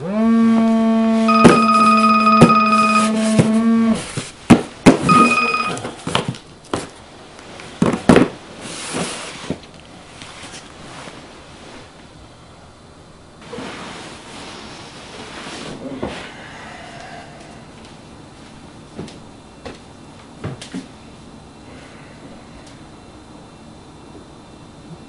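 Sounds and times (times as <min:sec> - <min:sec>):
high beep: 0:01.3 - 0:03.2, 0:05.0 - 0:05.8
electronic buzzer tone: 0:01.3 - 0:04.0, 0:05.0 - 0:05.9.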